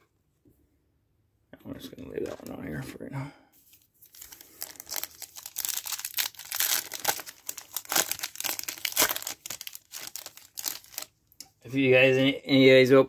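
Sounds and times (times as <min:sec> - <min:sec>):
foil wrapper crinkling: 0:03.7 - 0:11.2.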